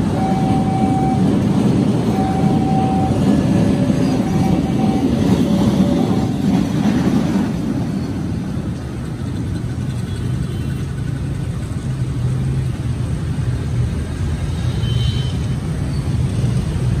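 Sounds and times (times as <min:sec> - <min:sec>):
vehicle engine rumble: 0:00.0 - 0:17.0
brief high tone: 0:00.1 - 0:01.4, 0:02.1 - 0:06.5.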